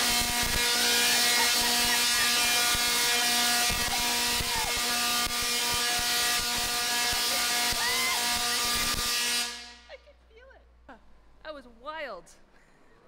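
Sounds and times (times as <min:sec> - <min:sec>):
loud electric buzz: 0:00.0 - 0:10.0.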